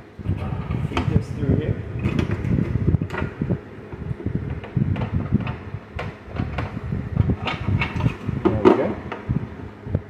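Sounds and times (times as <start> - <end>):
plastic parts and wires rustling: 4.1 - 9.4.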